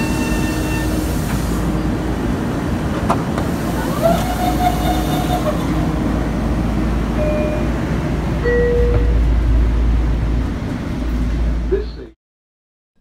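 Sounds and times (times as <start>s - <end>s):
electric train low rumble: 0.0s - 12.2s.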